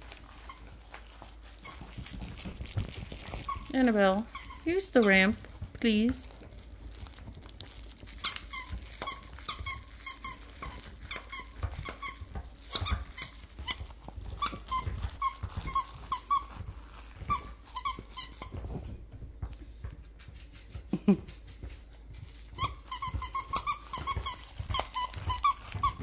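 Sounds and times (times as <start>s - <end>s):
squeaky dog toy squeaking: 0.4s - 5.3s, 8.1s - 18.6s, 22.5s - 26.0s.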